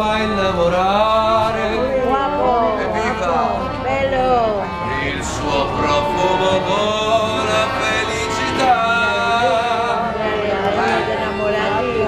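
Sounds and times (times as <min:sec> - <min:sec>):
person singing long notes: 0:00.0 - 0:12.0.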